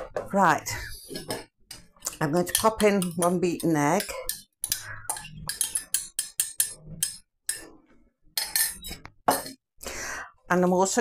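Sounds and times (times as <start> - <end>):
metal utensil clinking on mug: 2.1 - 7.6, 8.4 - 9.6.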